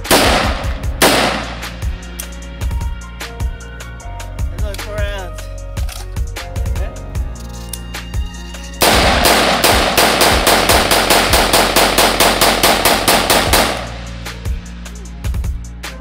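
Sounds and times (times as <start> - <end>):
rifle firing rapid shots: 0.0 - 1.7, 8.8 - 13.9.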